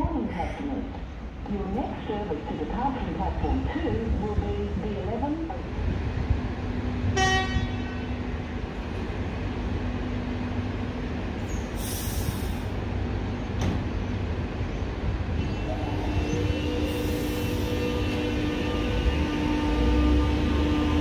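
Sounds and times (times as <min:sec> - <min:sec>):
electric train low hum: 0:00.0 - 0:21.0
whining train motor: 0:15.6 - 0:21.0.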